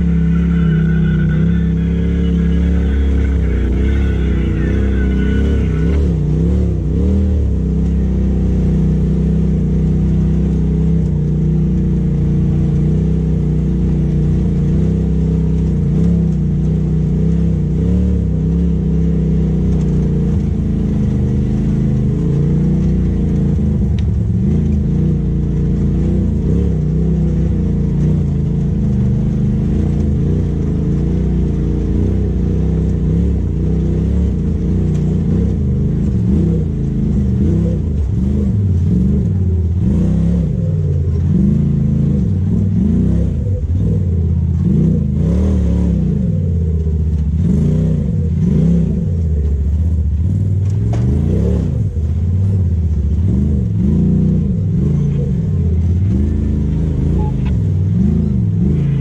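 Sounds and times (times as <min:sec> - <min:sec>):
engine running under light throttle: 0:00.0 - 0:59.0.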